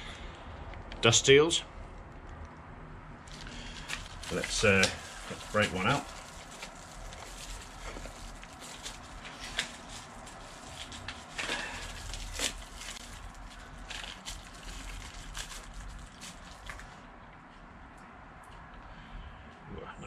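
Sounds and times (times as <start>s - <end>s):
cardboard and plastic bag crinkling: 3.3s - 17.0s.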